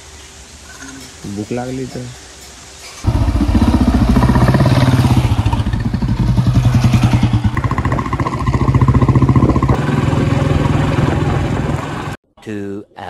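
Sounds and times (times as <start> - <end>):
motorcycle engine running: 3.1 - 12.2.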